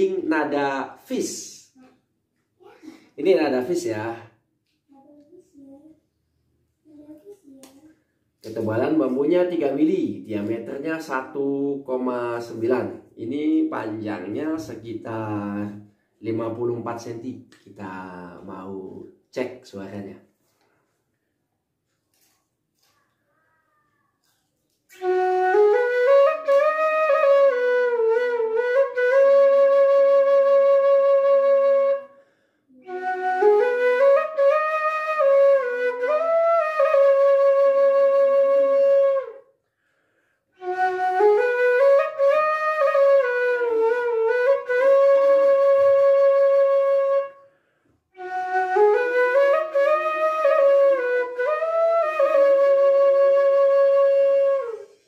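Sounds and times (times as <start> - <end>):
bamboo flute melody: 24.9 - 32.1, 32.8 - 39.4, 40.6 - 47.4, 48.2 - 55.0.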